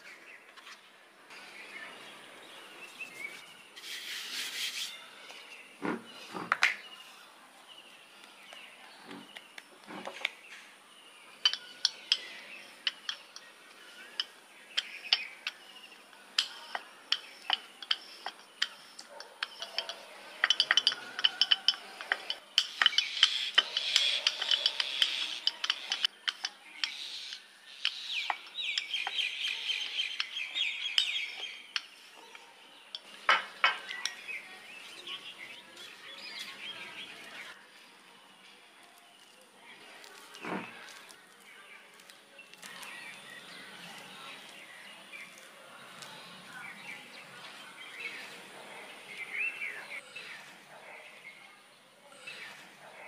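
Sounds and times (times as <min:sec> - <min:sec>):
kitchen utensils and dishes clinking: 0:11.4 - 0:27.4.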